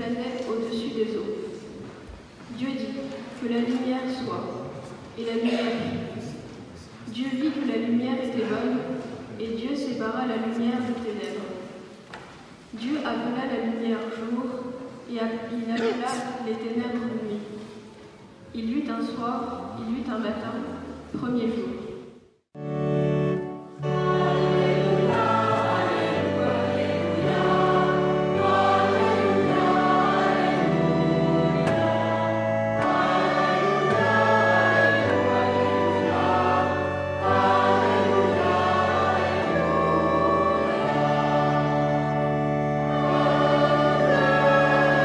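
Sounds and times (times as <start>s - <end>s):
choir singing sacred music: 23.6s - 45.0s.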